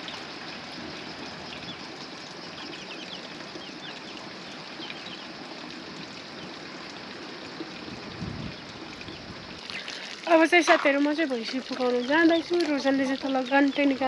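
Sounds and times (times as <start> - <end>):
running water rushing: 0.0 - 14.0
small birds chirping: 1.4 - 5.6, 7.4 - 14.0.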